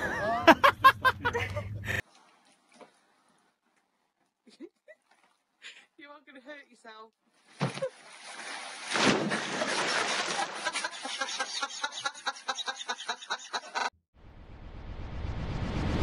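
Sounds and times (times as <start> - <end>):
water splashing in pool: 2.0 - 5.7, 7.3 - 11.4
rising whoosh: 14.2 - 16.0.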